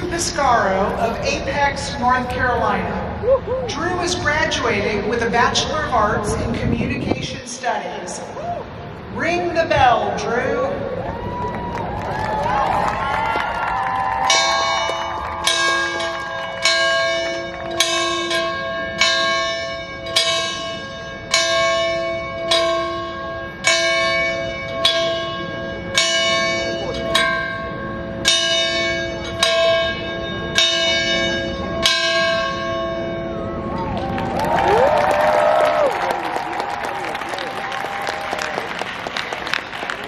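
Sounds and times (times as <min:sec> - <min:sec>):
large bell ringing: 0:14.1 - 0:34.0.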